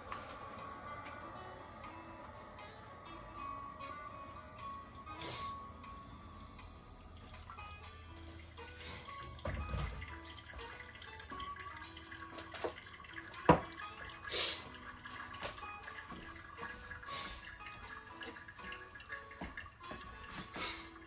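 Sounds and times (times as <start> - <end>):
quiet background music: 0.0 - 21.0
glass set down on wood: 13.5 - 13.7.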